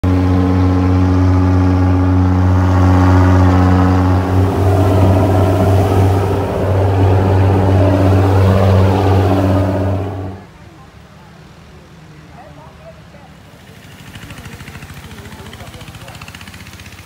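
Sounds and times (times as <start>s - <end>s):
boat engine drone: 0.0s - 10.8s.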